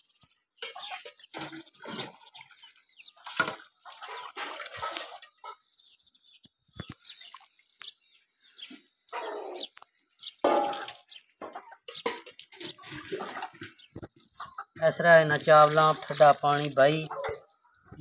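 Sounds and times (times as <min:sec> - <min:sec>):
chickens clucking: 0:00.6 - 0:02.4, 0:03.2 - 0:05.8, 0:08.6 - 0:16.2, 0:16.9 - 0:18.0
water splashing onto rice: 0:03.2 - 0:05.2, 0:15.2 - 0:16.8.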